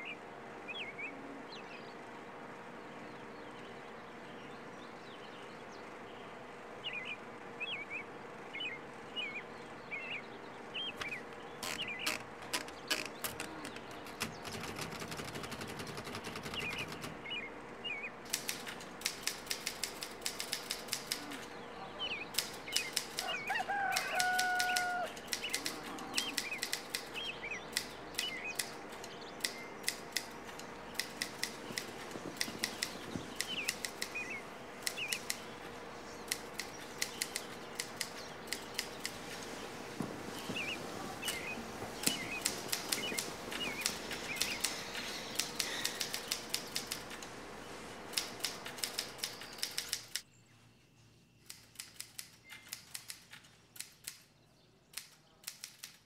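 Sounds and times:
small birds chirping: 0.0s - 56.0s
typewriter keys clacking: 11.0s - 17.2s, 18.3s - 21.4s, 23.9s - 34.2s, 42.0s - 47.2s, 48.1s - 50.2s
rooster crowing: 23.1s - 26.4s.

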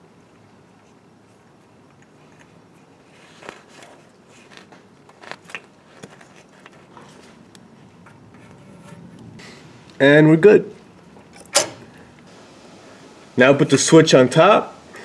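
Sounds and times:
pipe fittings clicking and scraping: 11.1s - 11.7s.

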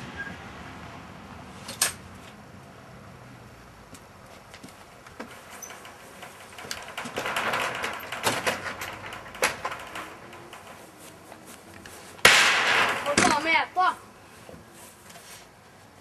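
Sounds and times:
sharp clicks and knocks: 3.9s - 13.5s
rustling: 4.3s - 13.6s
loud bang: 12.2s - 13.4s.

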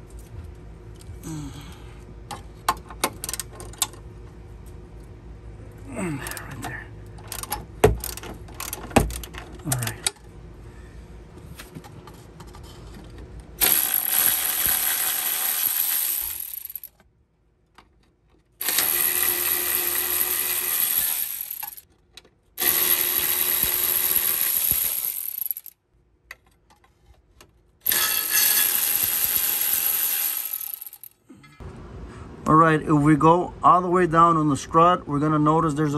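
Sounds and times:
air ratchet running: 7.3s - 10.0s, 13.6s - 17.0s, 18.6s - 21.8s, 22.6s - 25.8s, 27.8s - 31.2s.

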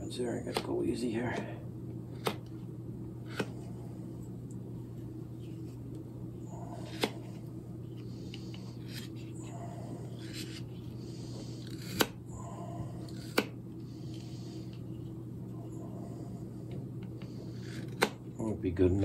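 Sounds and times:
knife scraping wood: 3.2s - 3.6s, 6.6s - 7.3s, 8.0s - 9.4s, 10.0s - 12.2s, 13.0s - 13.5s, 17.2s - 18.2s.

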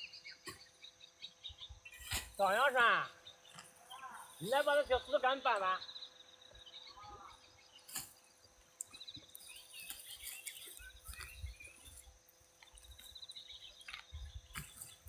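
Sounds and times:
birds chirping: 0.0s - 15.0s
insects calling: 0.0s - 15.0s
hoe clicking in soil: 7.9s - 15.0s.

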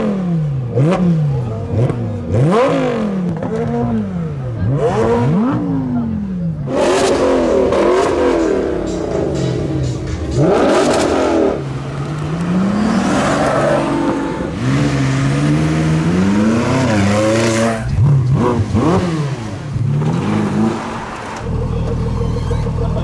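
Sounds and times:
car engine accelerating hard: 0.0s - 23.0s.

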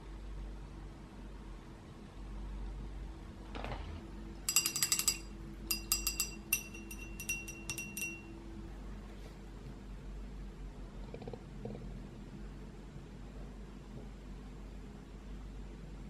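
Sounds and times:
metal clinking against glass: 4.5s - 8.3s.

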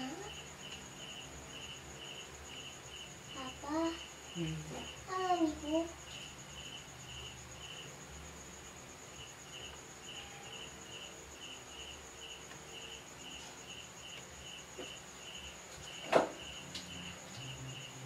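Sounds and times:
cricket chirping: 0.0s - 18.0s
faint low hum: 0.0s - 18.0s.

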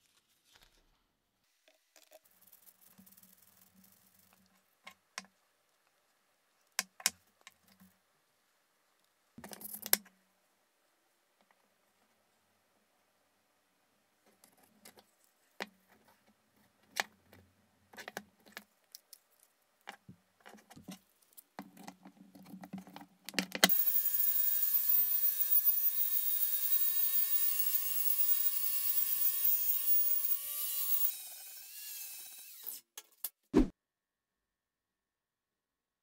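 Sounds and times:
angle grinder grinding metal: 23.7s - 32.7s.

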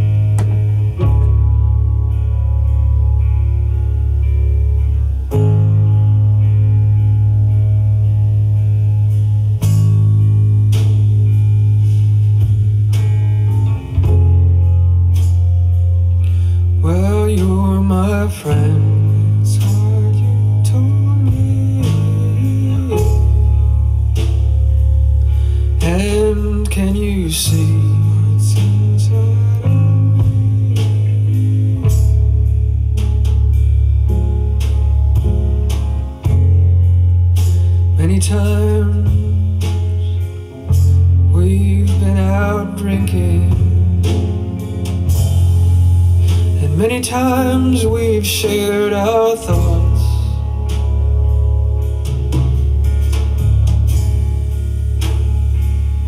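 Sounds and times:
guitar song over heavy bass: 0.0s - 56.0s
person singing: 16.2s - 23.6s, 25.5s - 31.6s, 41.3s - 44.0s, 46.3s - 50.6s.

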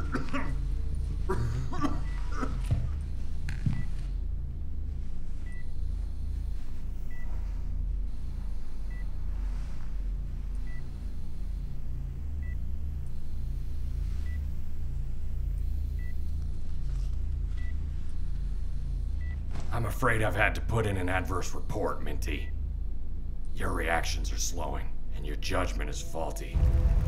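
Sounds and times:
patient monitor beeping: 0.0s - 2.5s, 5.4s - 6.5s, 7.1s - 7.4s, 8.3s - 9.2s
low steady hum: 0.0s - 27.0s.

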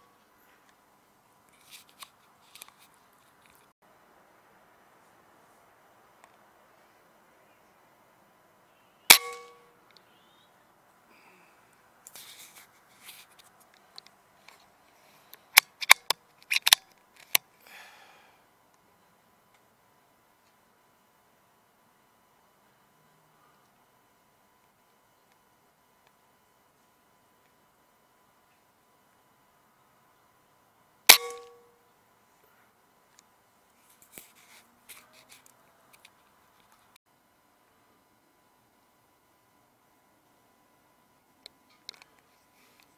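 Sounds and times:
faint clicks and rustles: 1.4s - 3.8s, 11.7s - 17.5s, 32.4s - 37.0s
rifle shot ringing: 9.1s - 9.7s, 31.1s - 31.7s
soft rustle: 12.1s - 15.1s
sharp mechanical clicks of rifle: 15.6s - 17.4s.

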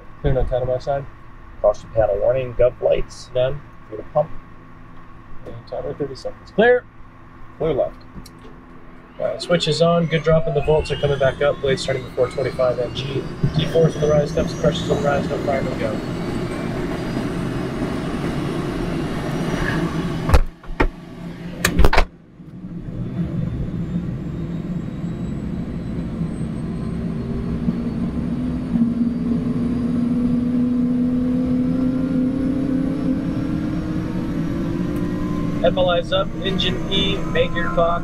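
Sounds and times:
helicopter engine starting: 7.6s - 22.0s, 22.6s - 38.0s.

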